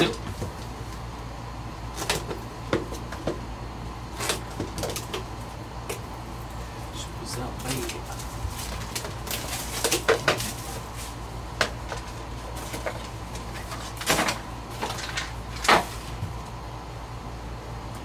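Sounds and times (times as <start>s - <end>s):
shrink wrap crinkling and tearing: 7.4s - 16.2s
cards being handled: 7.6s - 16.2s.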